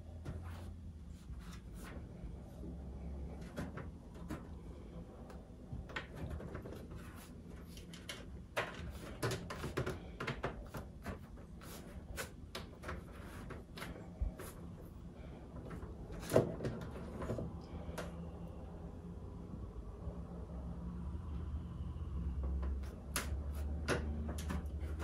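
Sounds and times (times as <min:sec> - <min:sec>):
cat claws scratching on microwave: 0:05.9 - 0:14.9, 0:22.7 - 0:25.0.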